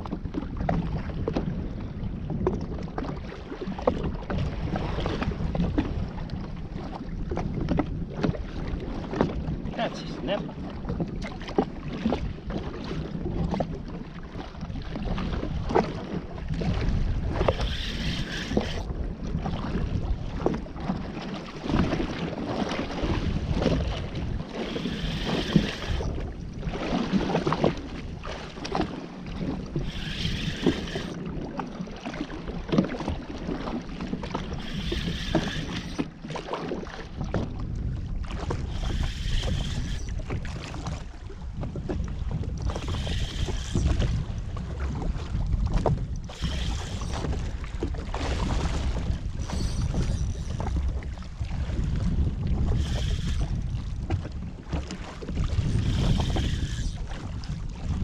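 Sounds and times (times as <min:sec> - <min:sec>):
small waves slapping hull: 0:00.0 - 0:58.0
wind buffeting microphone: 0:00.0 - 0:58.0
short higher-pitched bursts: 0:29.8 - 0:31.2, 0:34.6 - 0:36.0, 0:46.3 - 0:47.3, 0:52.8 - 0:53.5, 0:55.8 - 0:57.0.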